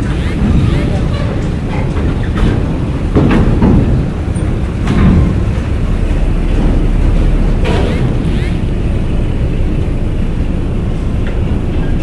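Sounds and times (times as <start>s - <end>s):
sharp metallic knocks: 2.3s - 4.2s.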